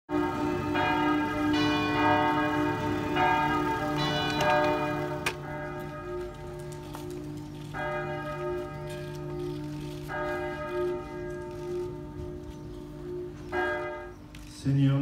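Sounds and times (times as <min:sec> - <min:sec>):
church bells tolling: 0:00.1 - 0:15.0.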